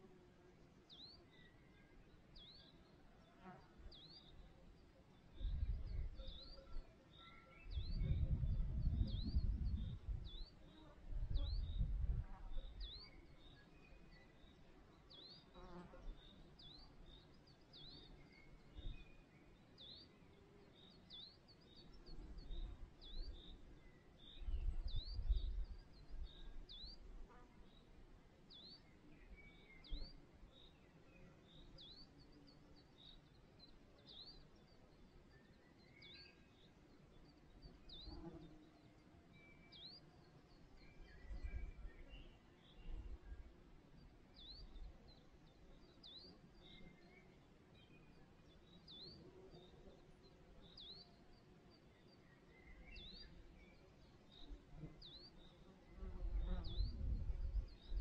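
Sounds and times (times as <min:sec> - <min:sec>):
faint birdsong: 0:00.0 - 0:58.0
wind buffeting microphone: 0:07.7 - 0:10.4, 0:11.1 - 0:12.3, 0:56.3 - 0:58.0.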